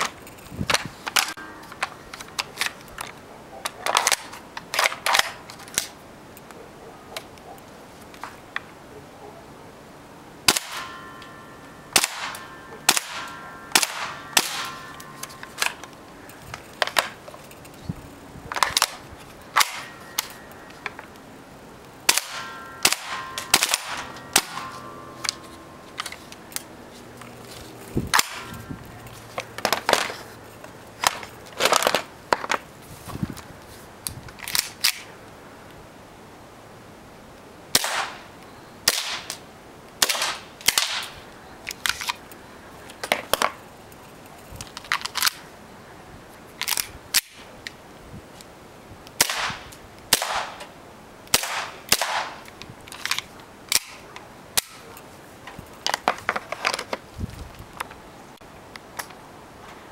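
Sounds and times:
airsoft gun shots: 10.5 - 11.0, 12.0 - 14.9, 22.1 - 24.7, 37.8 - 38.2, 49.2 - 50.6, 51.3 - 52.4.

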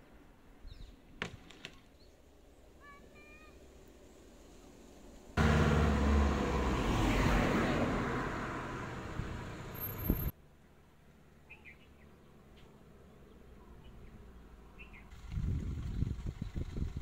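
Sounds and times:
vehicle engine and tyres on road: 3.5 - 17.0.

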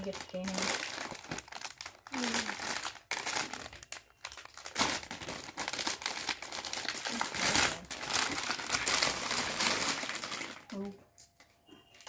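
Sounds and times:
gift wrapping crinkling: 0.0 - 12.0.

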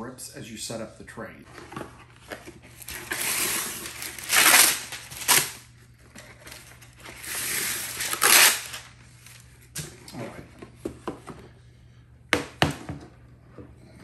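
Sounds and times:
paper crinkling: 1.7 - 9.6
paper ripping: 2.8 - 5.6, 6.4 - 9.4.

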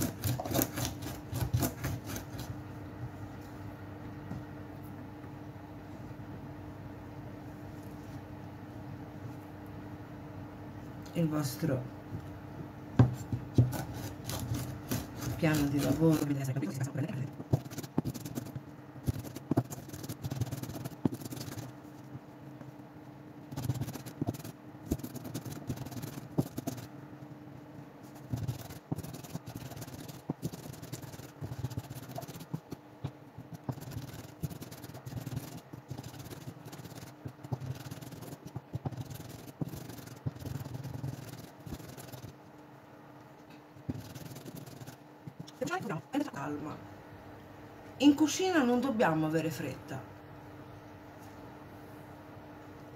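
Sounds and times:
knife chopping on wooden board: 0.0 - 2.5, 13.0 - 16.3.

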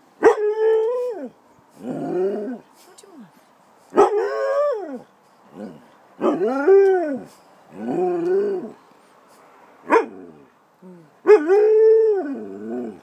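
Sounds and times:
dog barking: 9.9 - 10.2.

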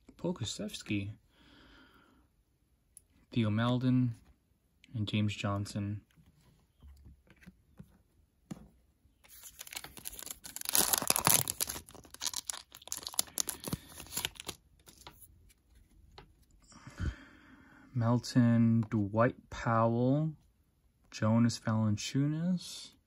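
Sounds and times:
foil wrapper tearing and crinkling: 9.3 - 15.1.

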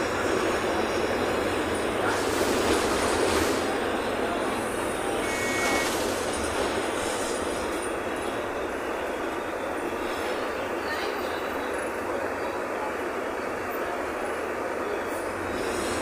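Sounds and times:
bus engine: 0.0 - 16.0
road noise: 0.0 - 16.0
brief high tone: 5.2 - 6.0.

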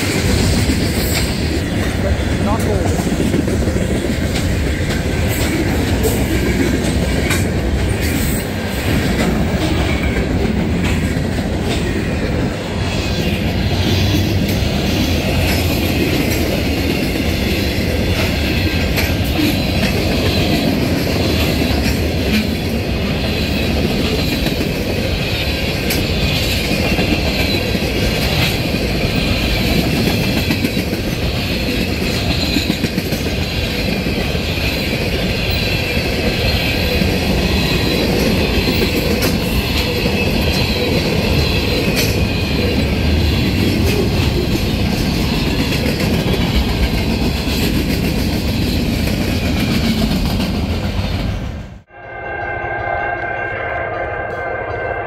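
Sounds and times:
steel wheels rumbling on rail: 0.0 - 55.0.

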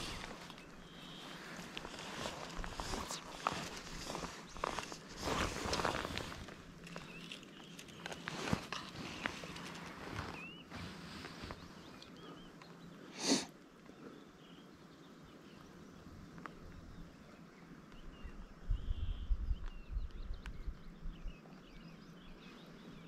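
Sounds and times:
low wind rumble on microphone: 0.0 - 7.2, 18.0 - 23.0
faint high bird chirps: 16.7 - 23.0.

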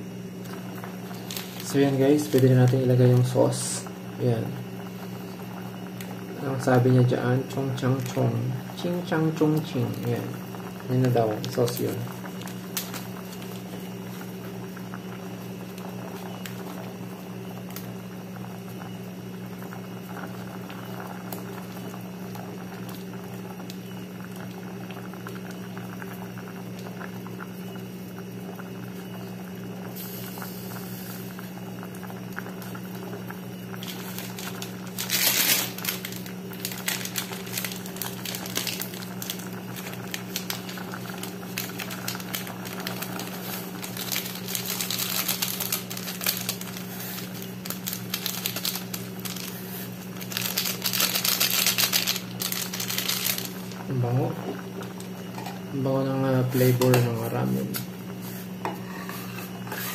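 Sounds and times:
pot boiling and bubbling: 0.0 - 59.9
plastic packet crinkling: 0.4 - 3.3, 10.9 - 14.3, 33.7 - 53.9.

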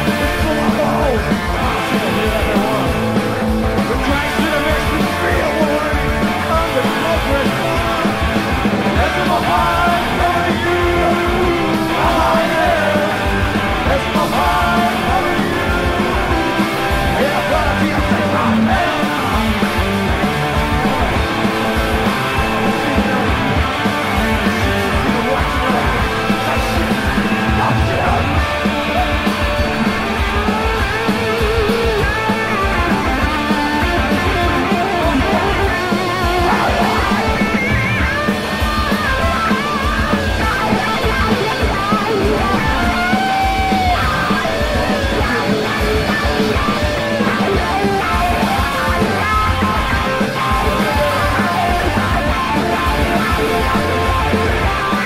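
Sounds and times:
punk rock band playing: 0.0 - 55.0.

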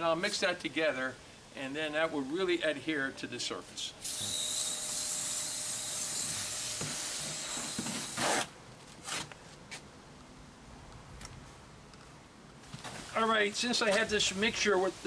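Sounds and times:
steady hiss: 13.1 - 15.0.

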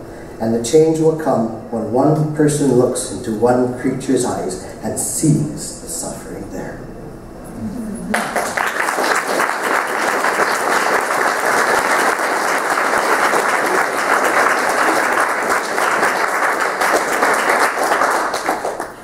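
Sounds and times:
audience applauding: 8.1 - 19.0.

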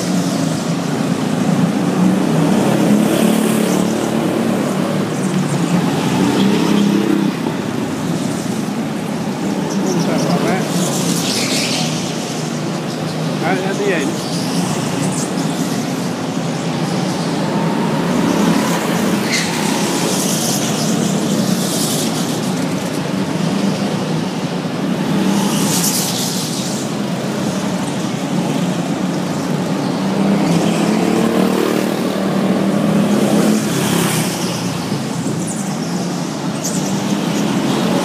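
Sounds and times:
go-kart engines droning: 0.0 - 38.0
karts passing close: 0.0 - 38.0.

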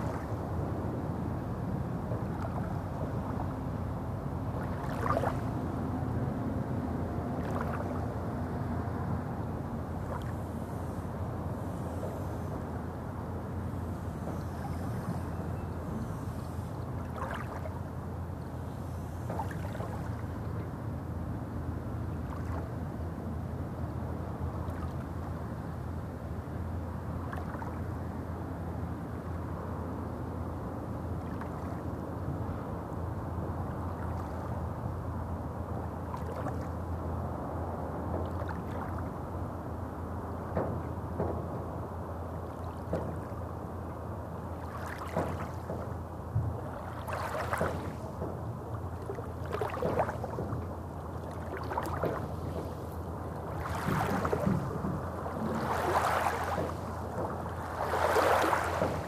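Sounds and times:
soft water splashes: 0.0 - 12.9, 13.5 - 23.5, 24.3 - 25.8, 27.1 - 28.3, 31.1 - 32.8, 33.5 - 39.5, 42.4 - 59.0
steady low rumble: 0.0 - 59.0
small waves lapping on pebbles: 46.7 - 48.2, 51.2 - 59.0.

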